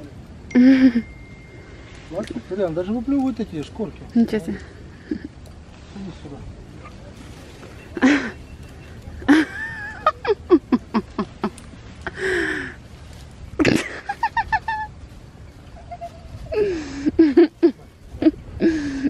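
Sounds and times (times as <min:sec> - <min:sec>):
person laughing: 0:00.6 - 0:01.1, 0:09.2 - 0:12.7, 0:13.6 - 0:15.0, 0:15.7 - 0:19.0
breathy gasps: 0:18.6 - 0:19.0.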